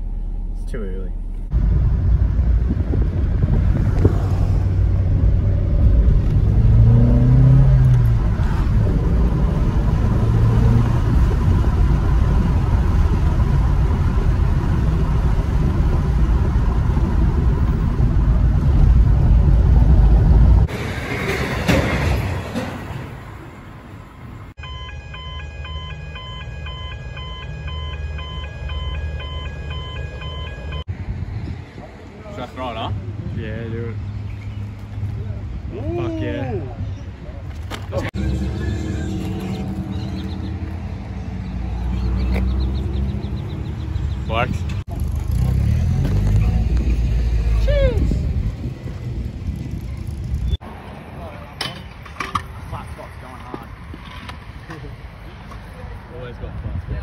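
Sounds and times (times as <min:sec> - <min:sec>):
car engine and road rumble: 0:00.0 - 0:57.0
pulsing multi-tone signal: 0:24.6 - 0:30.9.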